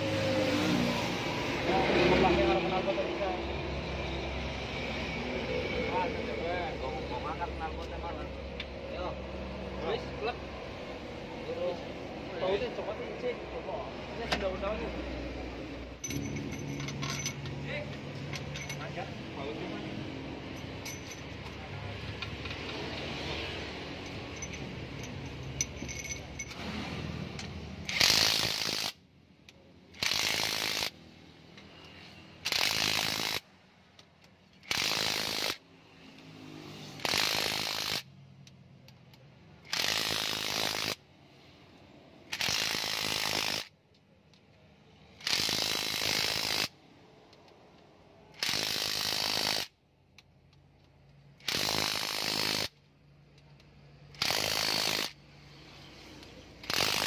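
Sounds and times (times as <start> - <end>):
impact wrench hammering bolts: 16.0 - 19.0, 20.4 - 23.2, 23.8 - 26.7, 27.3 - 29.0, 29.9 - 30.9, 32.4 - 33.4, 34.0 - 35.6, 42.3 - 43.7, 45.2 - 55.2, 56.1 - 57.0.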